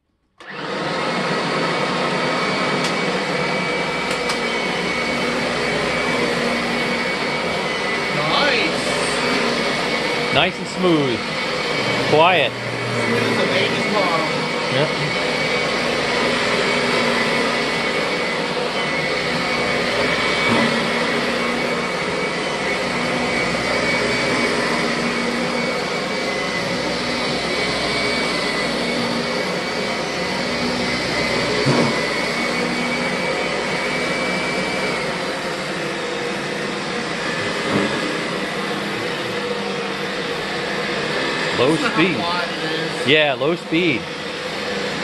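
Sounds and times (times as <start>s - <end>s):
vacuum cleaner motor hum: 0.4s - 45.0s.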